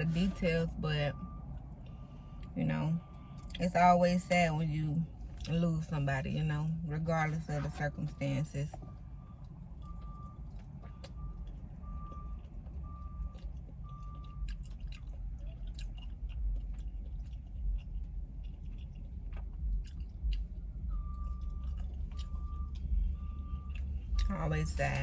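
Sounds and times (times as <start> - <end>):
low rumble: 0.0 - 25.0
truck reversing alarm beeping: 0.0 - 25.0
close chewing: 8.7 - 25.0.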